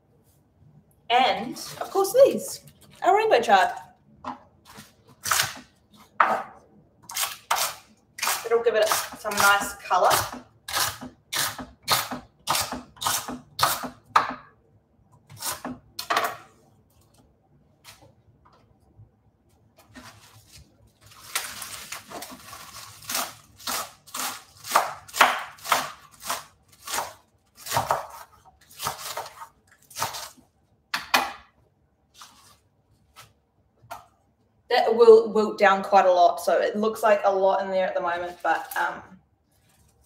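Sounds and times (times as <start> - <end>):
knife chopping on wooden board: 7.5 - 14.5, 24.6 - 29.4.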